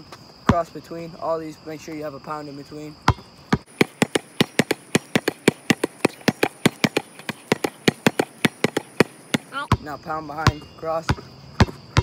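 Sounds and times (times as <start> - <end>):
basketball bouncing on concrete: 0.5 - 0.7, 3.0 - 12.0.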